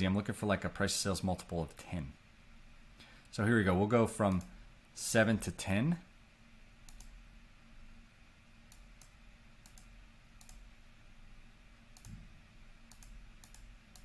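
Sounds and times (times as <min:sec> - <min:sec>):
computer mouse clicks: 0:06.9 - 0:07.2, 0:08.7 - 0:10.7, 0:12.0 - 0:12.2, 0:12.9 - 0:14.0.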